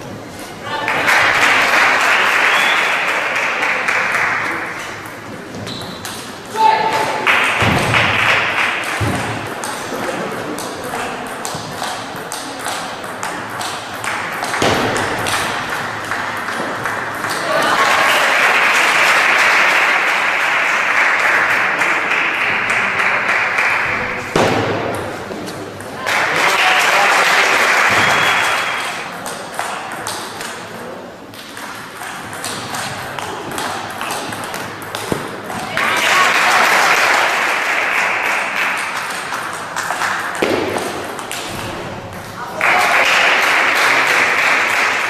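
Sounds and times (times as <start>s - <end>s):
spectators applauding: 0.7s - 4.8s, 7.2s - 8.9s, 15.2s - 24.2s, 26.0s - 29.1s, 35.7s - 40.4s, 42.5s - 45.0s
table tennis ball hits: 4.2s - 17.5s, 24.3s - 26.4s, 27.8s - 36.1s, 38.6s - 43.5s.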